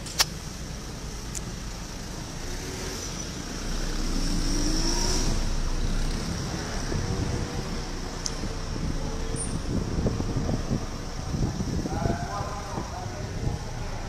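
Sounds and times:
road noise: 0:00.0 - 0:14.0
car engine accelerating: 0:01.9 - 0:11.6.

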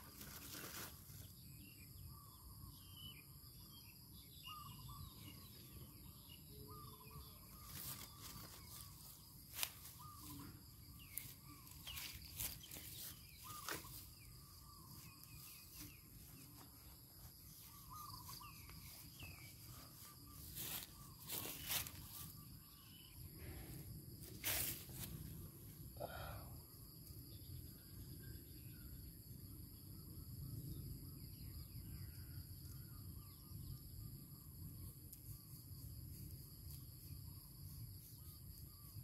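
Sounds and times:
insects droning: 0:00.0 - 0:39.0
short chirping calls: 0:01.2 - 0:16.6, 0:17.4 - 0:23.2.

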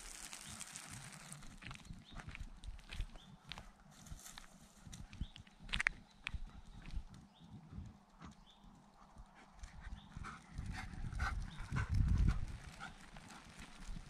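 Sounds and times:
footsteps on asphalt: 0:00.0 - 0:08.7.

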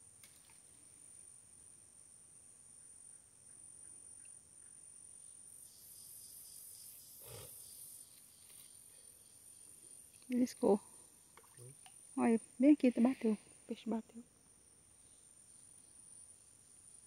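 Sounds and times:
high-pitched insect chorus: 0:00.8 - 0:17.0.

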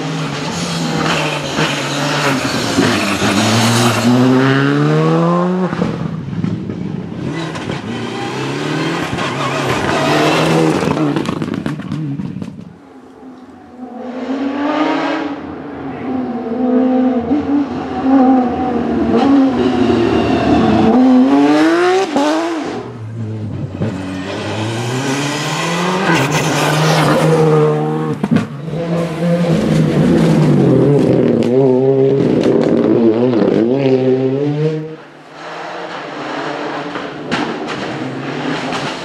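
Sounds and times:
rally car engines revving: 0:00.0 - 0:39.0
car passing close: 0:13.1 - 0:39.0.

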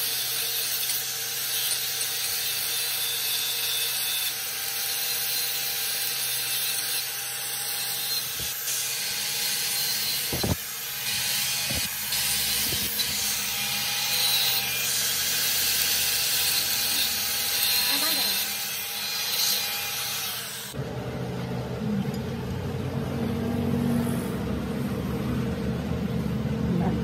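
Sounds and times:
angle grinder grinding metal: 0:00.0 - 0:20.8.

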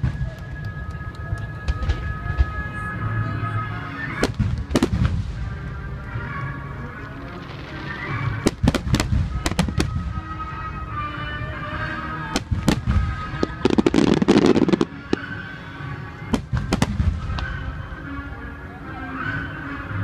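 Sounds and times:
music: 0:00.0 - 0:20.0
firework crackle: 0:04.1 - 0:10.9, 0:12.1 - 0:17.8.

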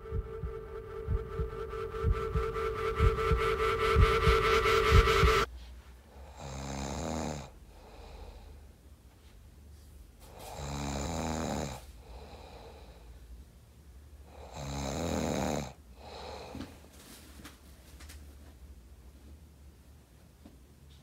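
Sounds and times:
person snoring: 0:10.5 - 0:12.7.

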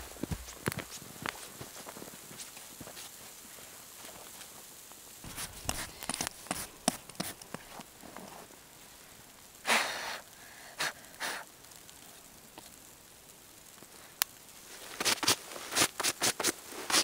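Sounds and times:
rustling and knocking: 0:00.0 - 0:02.0, 0:05.3 - 0:08.4
person exhaling loudly: 0:09.6 - 0:11.5.

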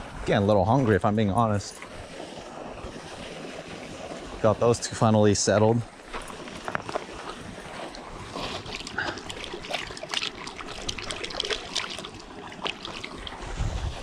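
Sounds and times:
river water trickling and splashing: 0:00.0 - 0:14.0.

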